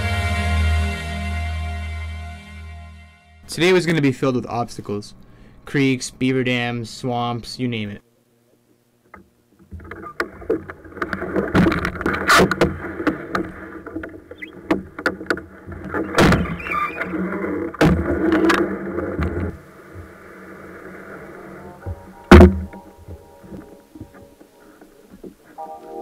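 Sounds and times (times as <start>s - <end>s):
canoe hull bumping and scraping: 9.1s - 25.6s
knocks and thuds on hull: 9.2s - 16.6s, 17.8s - 20.1s, 21.8s - 24.3s.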